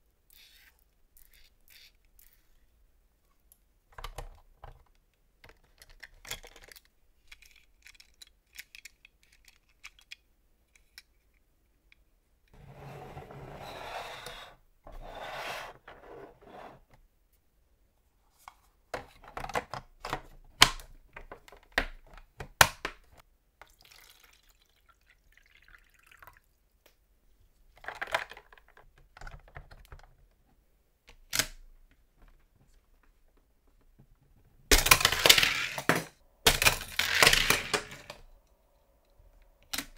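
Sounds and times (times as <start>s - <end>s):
plastic toy clicks and knocks: 5.4s - 11.2s, 34.7s - 38.2s
plastic toy scraping: 12.6s - 16.9s.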